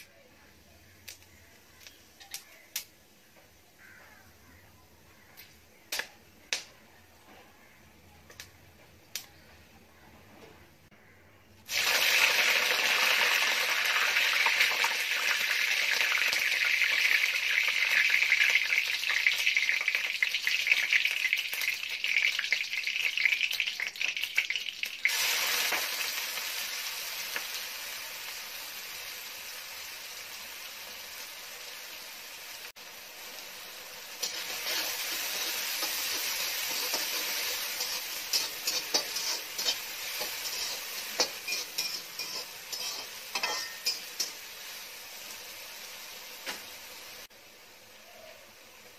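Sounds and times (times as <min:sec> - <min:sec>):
leaves sizzling in hot oil: 0:00.0 - 0:04.4, 0:11.7 - 0:48.9
onions frying: 0:00.0 - 0:06.8, 0:11.6 - 0:48.9.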